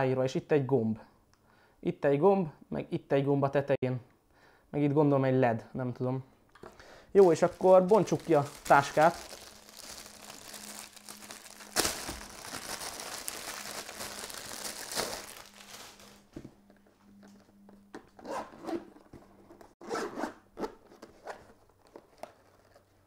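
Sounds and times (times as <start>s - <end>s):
plastic wrap rustling: 7.2s - 16.4s
zipper being opened: 18.2s - 18.9s, 19.8s - 20.8s.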